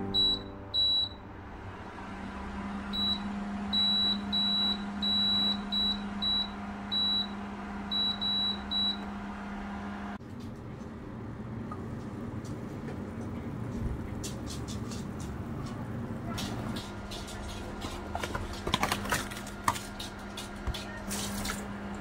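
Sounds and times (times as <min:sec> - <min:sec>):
high control panel beeps: 0:00.0 - 0:01.2, 0:02.9 - 0:09.1
steady low hum: 0:00.0 - 0:22.0.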